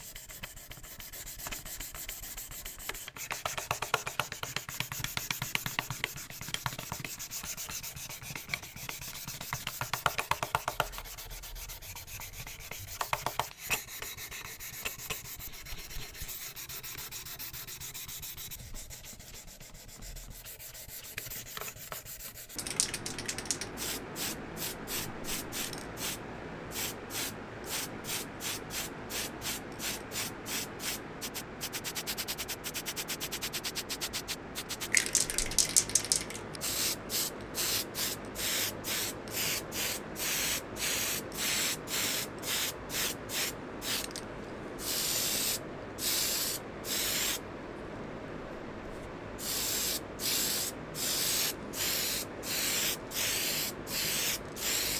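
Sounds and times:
spray paint hissing puffs: 10.6 - 31.4, 34.1 - 44.2, 44.8 - 47.4, 49.4 - 54.9.

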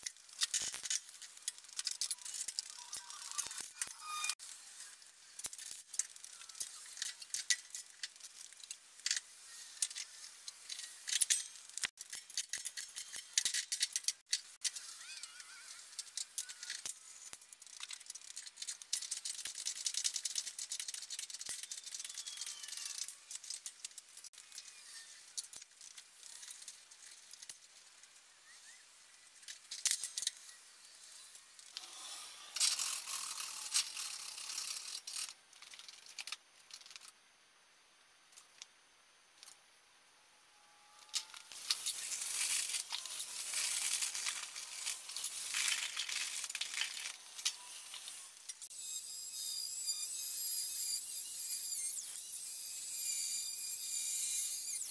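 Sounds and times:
aluminium foil crinkling: 0.0 - 14.8, 16.0 - 28.0, 41.1 - 48.3.

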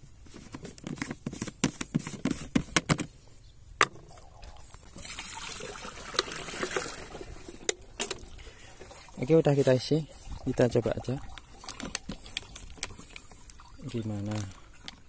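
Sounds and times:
water pouring into tank: 4.9 - 11.9.

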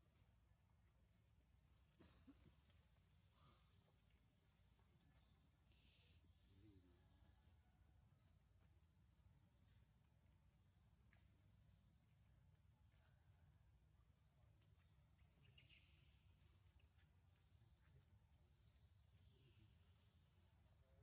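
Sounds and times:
faint insects buzzing: 0.0 - 21.0.

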